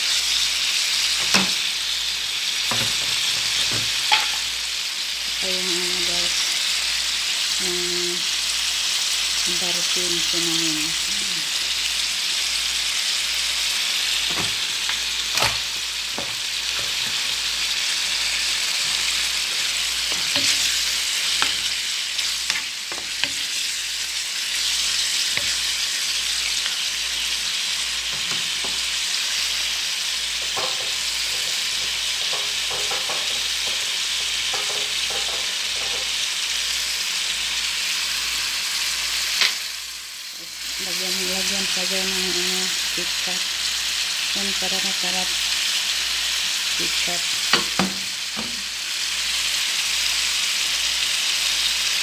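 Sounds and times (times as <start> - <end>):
food sizzling in frying pan: 0.0 - 52.0
wooden spatula knocking pan: 2.7 - 4.5, 30.4 - 36.1, 47.5 - 48.6.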